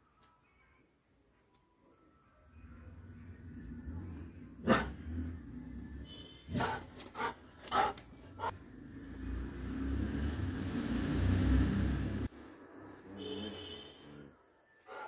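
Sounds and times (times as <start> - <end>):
dog barking: 4.6 - 5.0, 6.5 - 8.5.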